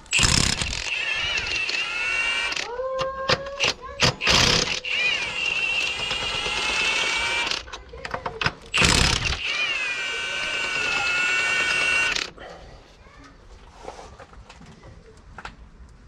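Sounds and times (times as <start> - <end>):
loud rattling burst: 0.0 - 2.6, 3.6 - 7.8, 8.6 - 12.3
power tool motor whining: 0.0 - 2.7, 3.3 - 7.8, 8.6 - 12.3.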